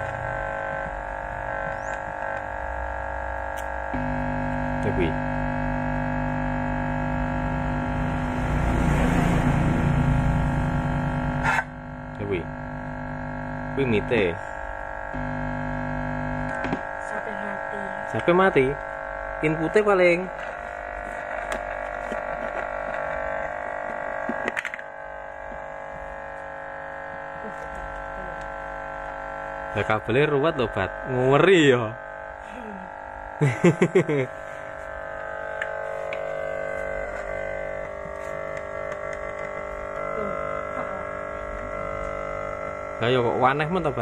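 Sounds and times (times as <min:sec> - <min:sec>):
cable plugging crackles: 0:00.0 - 0:02.6, 0:03.4 - 0:04.3, 0:16.3 - 0:17.0, 0:20.4 - 0:29.1, 0:34.6 - 0:40.1, 0:40.8 - 0:42.8
amplifier electrical hum: 0:00.0 - 0:44.0.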